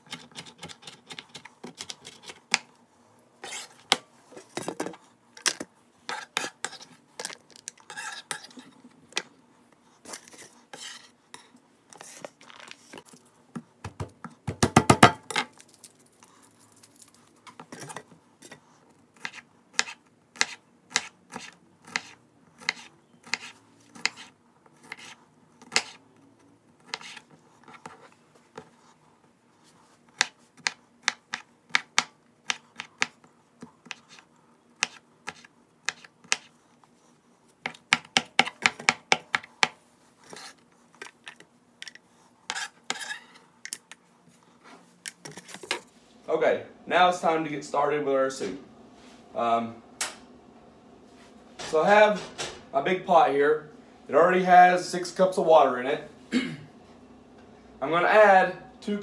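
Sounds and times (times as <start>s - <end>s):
knife chopping on countertop: 13.8s - 15.2s.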